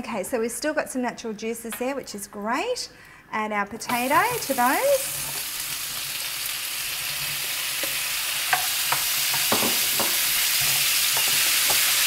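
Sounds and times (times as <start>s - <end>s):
potatoes sizzling in a frying pan: 3.9s - 12.0s
spatula knocking and scraping: 7.2s - 12.0s.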